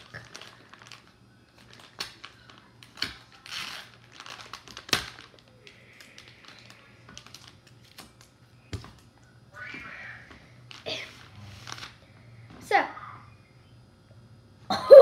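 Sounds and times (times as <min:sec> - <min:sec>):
plastic wet-wipe pack crinkling: 0:00.0 - 0:08.4.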